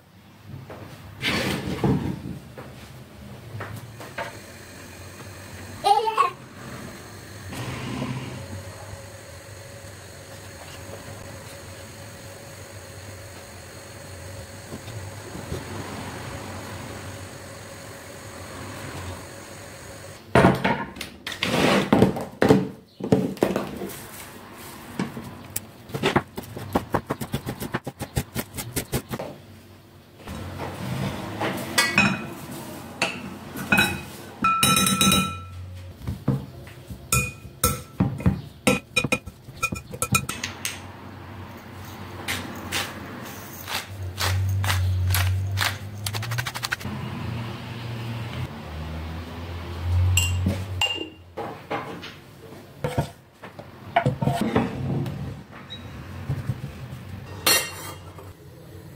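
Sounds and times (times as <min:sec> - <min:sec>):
steady hum: 0:03.9 - 0:20.2
glass jars clinking: 0:50.2 - 0:51.2.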